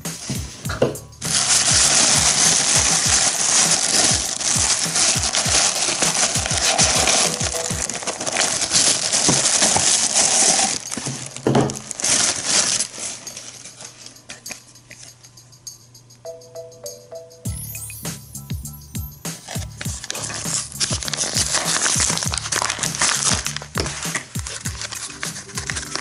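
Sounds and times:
tissue paper rustling and crinkling: 1.2s - 15.1s, 19.4s - 26.0s.

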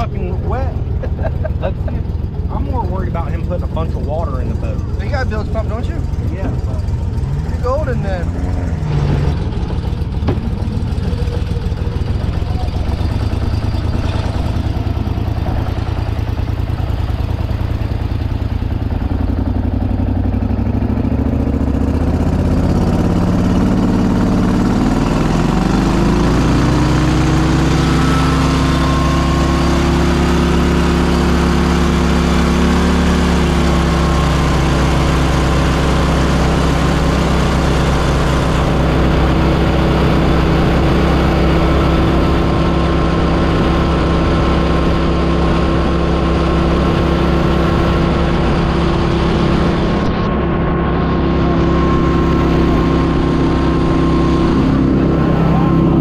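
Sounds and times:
boat engine running: 0.0s - 56.0s.

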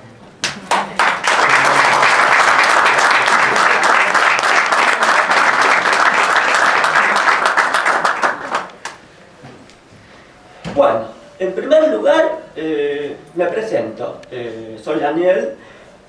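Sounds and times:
audience applauding: 0.4s - 9.0s.

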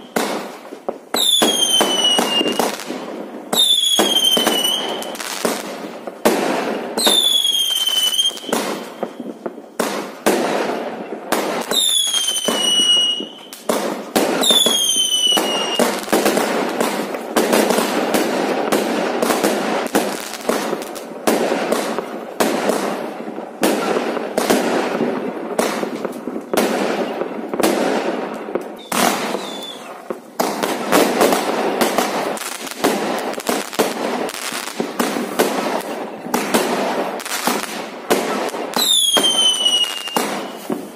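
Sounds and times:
firework bangs and crackles: 0.0s - 40.9s
firework whistles: 1.1s - 2.9s, 3.5s - 5.7s, 6.5s - 9.4s, 11.6s - 17.0s, 28.7s - 30.1s, 38.2s - 40.9s.

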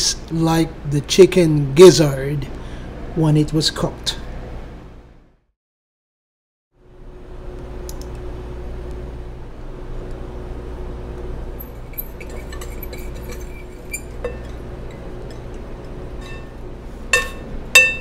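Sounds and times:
steady low hum: 6.8s - 18.0s
metal spoon clinking on glass bowl: 11.6s - 16.5s, 17.1s - 18.0s.

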